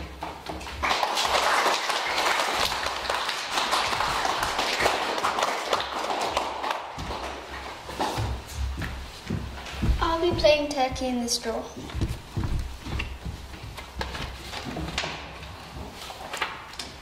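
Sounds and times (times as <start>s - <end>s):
children clapping: 0.6s - 7.8s.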